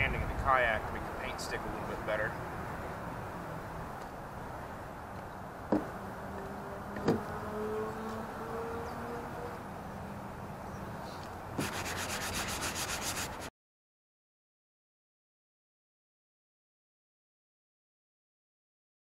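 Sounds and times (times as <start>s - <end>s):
hand sanding plastic: 11.6s - 13.5s.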